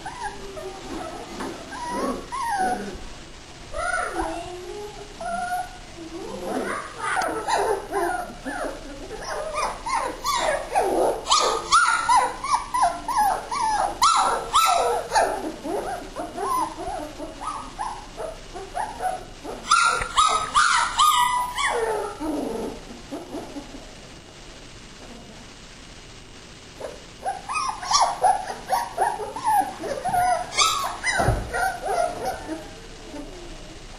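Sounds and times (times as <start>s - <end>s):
puppies whining and yelping: 0.0s - 3.1s, 5.2s - 23.8s, 26.8s - 33.6s.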